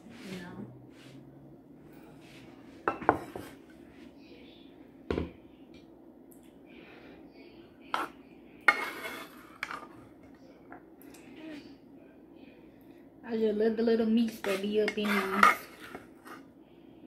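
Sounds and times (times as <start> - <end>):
metal spoon scraping inside pot: 8.7 - 10.0, 14.4 - 16.4.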